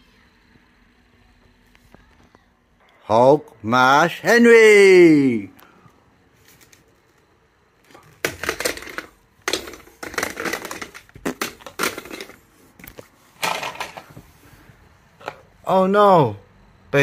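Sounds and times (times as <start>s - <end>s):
plastic toys smashing: 7.8s - 14.1s.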